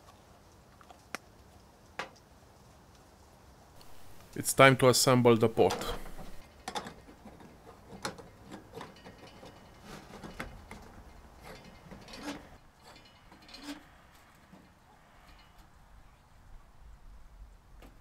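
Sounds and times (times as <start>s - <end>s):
metallic clicks and scrapes: 3.8s - 4.4s, 5.4s - 15.8s.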